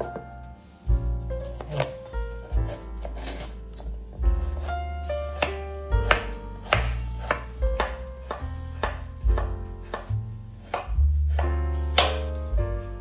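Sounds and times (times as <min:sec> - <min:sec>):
background music with deep bass: 0:00.0 - 0:13.0
knife chopping on wooden board: 0:01.6 - 0:04.7, 0:05.4 - 0:12.3.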